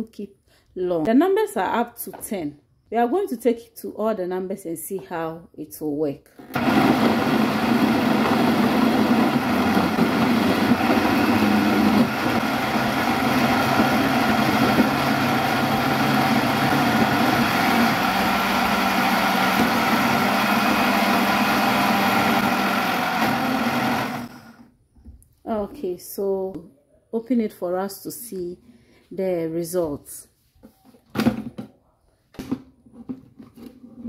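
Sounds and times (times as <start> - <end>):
blender running: 6.4 - 24.7.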